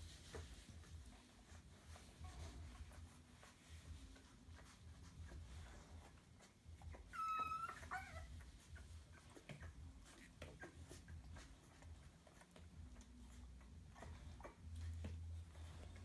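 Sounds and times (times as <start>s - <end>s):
faint clicks and shuffling: 0.0s - 16.0s
puppy crying: 6.4s - 11.9s.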